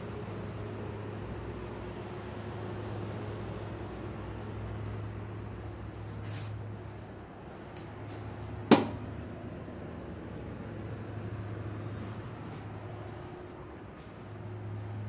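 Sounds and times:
low room hum: 0.0 - 15.0
sharp knock: 8.7 - 9.0.

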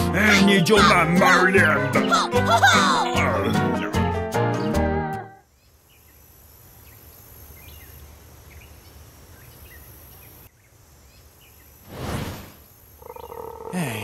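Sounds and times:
high insect chirps: 5.4 - 14.0
low outdoor hiss: 5.4 - 14.0.

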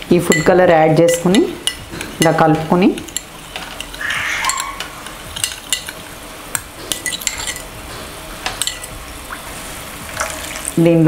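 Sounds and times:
spoon clinking glass bowl: 0.3 - 2.4, 6.9 - 7.7, 8.5 - 9.0
spoon scraping: 0.3 - 6.1, 6.8 - 7.7.

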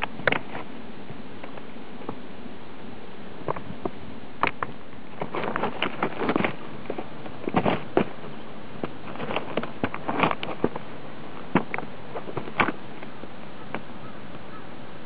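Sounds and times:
steady background hiss: 0.0 - 15.0
boots crunching on loose rocks: 4.5 - 13.2.

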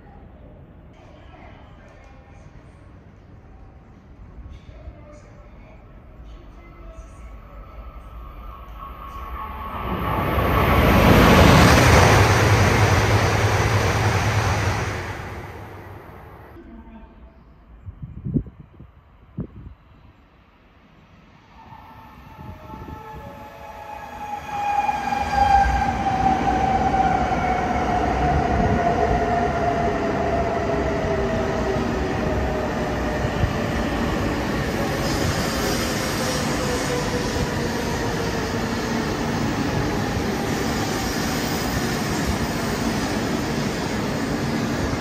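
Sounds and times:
train whine: 6.9 - 16.7, 21.3 - 45.0
train rushing past: 7.3 - 16.6, 21.1 - 45.0.

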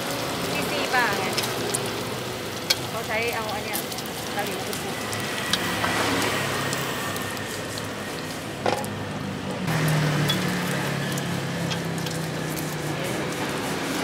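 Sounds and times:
omelette sizzling in oil: 0.0 - 14.0.

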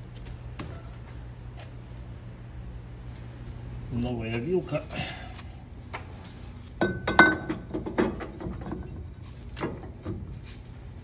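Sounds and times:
metal clinks and knocks: 6.8 - 9.0.

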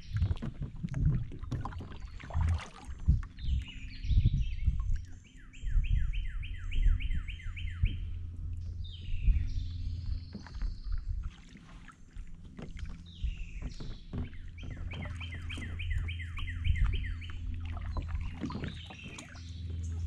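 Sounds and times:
kayak paddle splashing: 0.0 - 5.1, 7.6 - 20.0
steady low hum: 0.0 - 20.0
songbird singing: 1.4 - 20.0
short knocks: 12.4 - 16.0.

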